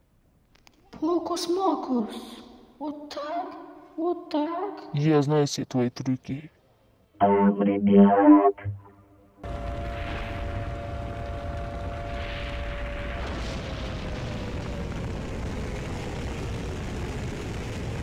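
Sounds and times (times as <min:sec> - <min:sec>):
roar of rockets in flight: 0:09.4 - 0:18.0.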